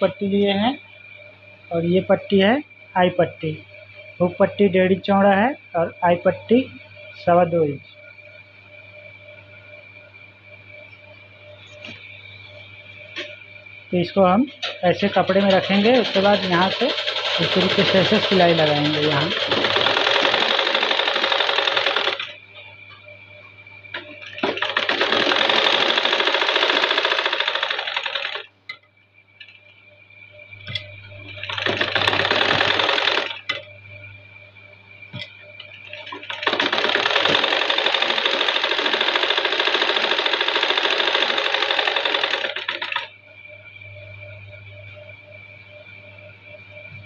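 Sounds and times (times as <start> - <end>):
faint steady hum: 0.0 - 47.0
sewing machine stitching: 15.2 - 22.3, 24.4 - 28.4, 31.4 - 33.4, 35.9 - 43.1.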